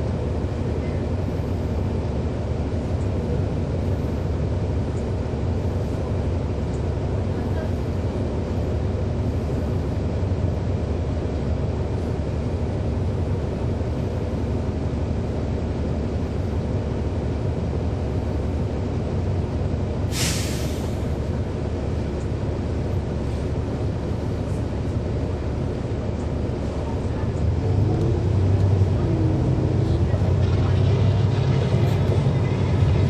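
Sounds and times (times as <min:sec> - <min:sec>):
bus diesel engine droning: 0:00.0 - 0:33.0
air hiss burst: 0:20.1 - 0:21.0.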